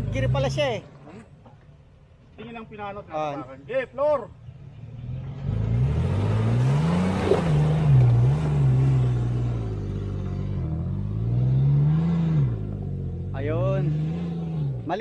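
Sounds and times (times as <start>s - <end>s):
off-road engine revving hard: 0.0s - 0.8s, 4.7s - 15.0s.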